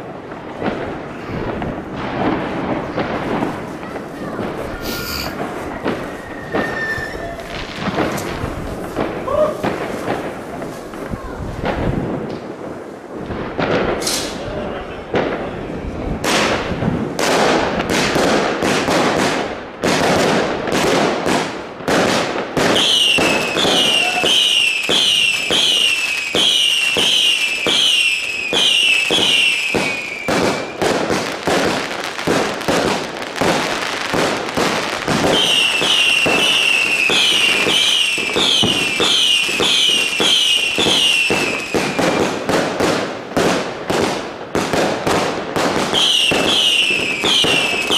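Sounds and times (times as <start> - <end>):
fireworks bangs and crackles: 0.0 - 47.9
whistling firework shots: 4.4 - 10.4, 21.3 - 47.9.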